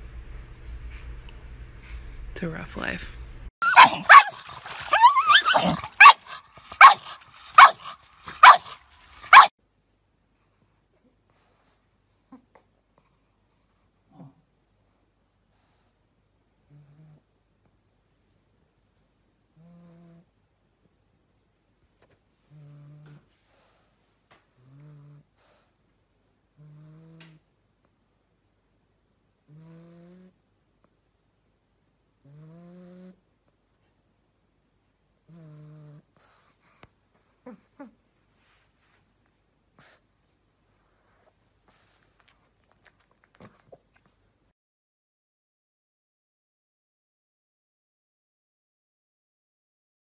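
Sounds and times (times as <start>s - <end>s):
dog barking and yelping: 3.6s - 9.5s
dog snoring: 16.6s - 17.3s, 19.5s - 20.3s, 22.4s - 25.8s, 26.5s - 27.4s, 29.4s - 30.4s, 32.2s - 33.2s, 35.2s - 36.6s.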